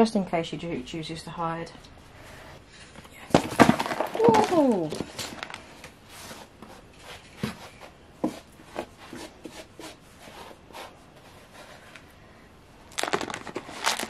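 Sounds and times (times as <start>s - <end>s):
hands handling plastic tub: 3.3s - 12.1s, 12.9s - 14.0s.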